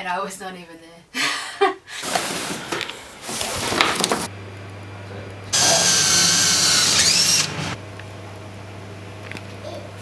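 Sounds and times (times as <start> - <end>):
cardboard rustling and scraping: 2.0 - 4.3
cordless drill whirring: 5.6 - 7.8.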